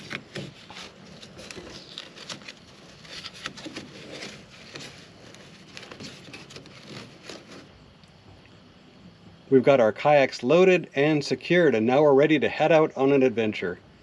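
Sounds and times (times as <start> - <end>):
small taps and scrapes: 0.0 - 7.7
strap webbing rustling: 0.0 - 7.7.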